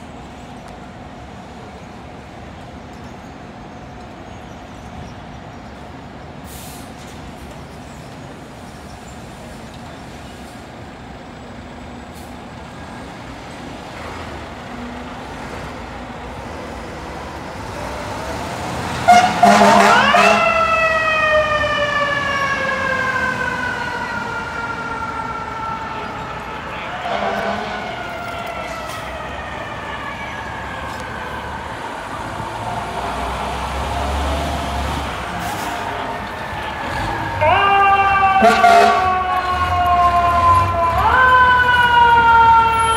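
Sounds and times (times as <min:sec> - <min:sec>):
fire engine running: 0:00.0 - 0:42.9
short loud horn blast: 0:19.1 - 0:20.5, 0:27.1 - 0:27.8, 0:38.4 - 0:39.1.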